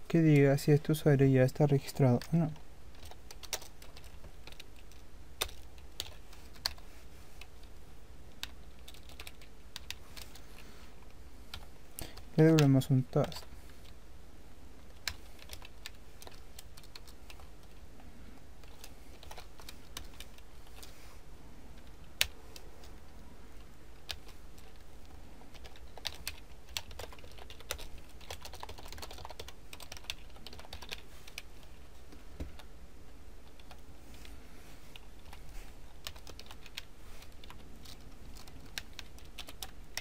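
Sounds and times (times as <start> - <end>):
steady low hum: 0.0 - 40.0
keyboard typing: 2.0 - 6.8, 8.3 - 10.4, 14.8 - 17.8, 18.6 - 20.9, 21.7 - 31.8, 34.9 - 40.0.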